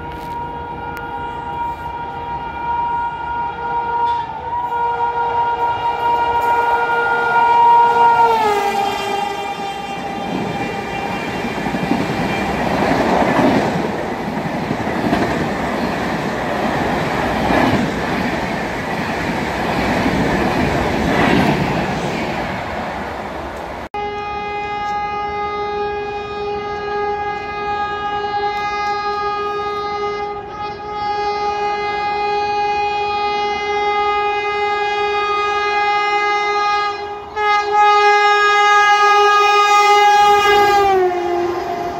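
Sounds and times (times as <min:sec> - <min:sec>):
train horn blowing: 0:00.0 - 0:13.6, 0:24.0 - 0:41.9
lower train horn: 0:00.0 - 0:17.8, 0:23.9 - 0:41.9
train coaches clattering past: 0:00.0 - 0:31.0.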